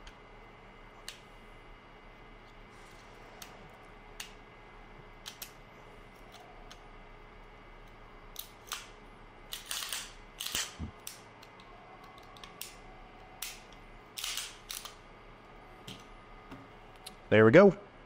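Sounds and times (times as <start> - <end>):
pistol parts clicking: 13.4 - 15.0.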